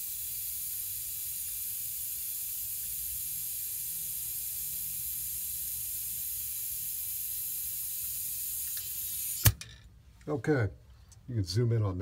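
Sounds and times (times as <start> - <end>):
compressed air hissing: 0.0 - 9.6.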